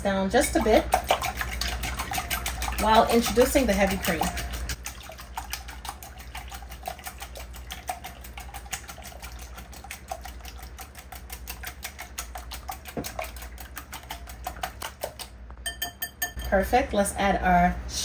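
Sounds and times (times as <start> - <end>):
whisk clicking against bowl: 0.4 - 16.6.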